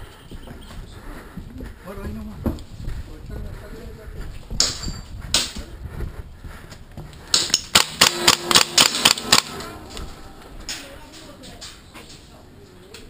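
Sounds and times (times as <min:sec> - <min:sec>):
airsoft rifle shots: 0:07.3 - 0:09.7.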